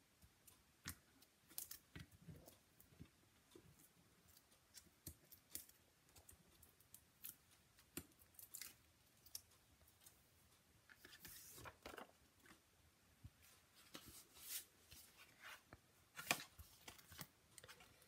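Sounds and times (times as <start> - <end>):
paper rustle: 11.0 - 12.2
light paper clicks and taps: 13.3 - 18.0.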